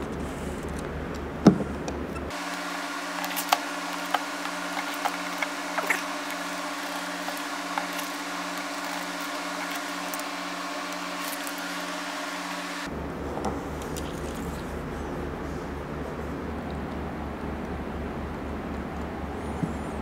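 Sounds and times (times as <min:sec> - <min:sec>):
steady two-tone hum: 0:00.0 - 0:20.0
metal pick scratching tape: 0:02.1 - 0:12.8.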